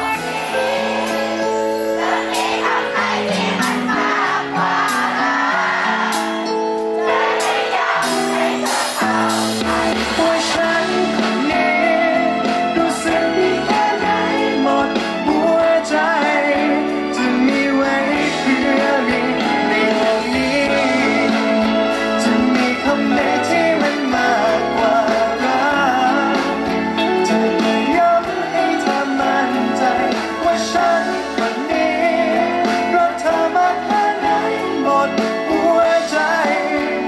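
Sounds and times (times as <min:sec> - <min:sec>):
electric guitar: 0:00.0 - 0:37.0
man singing pop ballad: 0:09.0 - 0:37.0.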